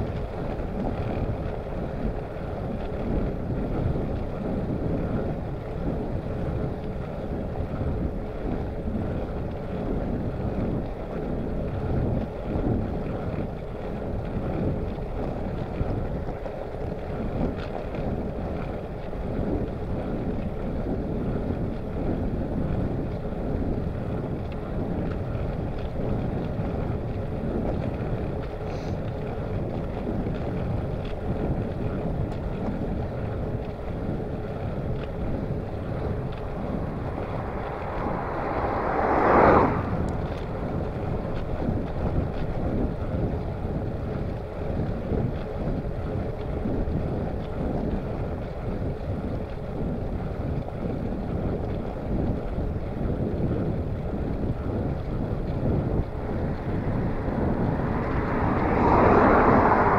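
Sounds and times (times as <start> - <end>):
wind rushing over microphone: 0.0 - 59.9
whoosh: 34.5 - 41.6, 54.9 - 59.9.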